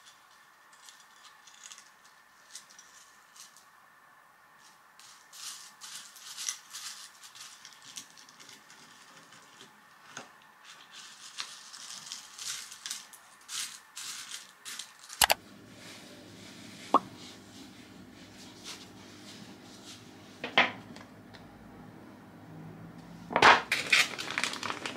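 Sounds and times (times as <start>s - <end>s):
cornflakes crackling under spoon: 0.0s - 3.7s, 4.6s - 9.8s, 10.6s - 15.3s, 23.7s - 24.9s
low room hum: 0.0s - 24.9s.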